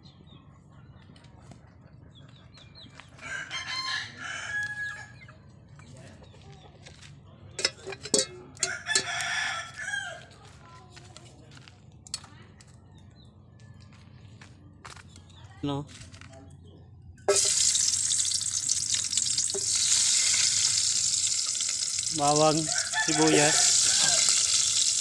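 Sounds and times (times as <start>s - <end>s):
rooster crowing: 3.2s - 5.2s, 8.6s - 10.3s, 22.2s - 25.0s.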